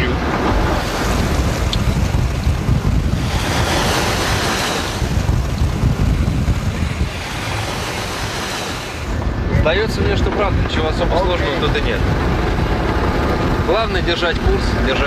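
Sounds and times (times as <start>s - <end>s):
hiss of spray and breaking water: 0.0s - 15.0s
sea rushing against hull: 0.0s - 15.0s
wind buffeting microphone: 0.0s - 15.0s.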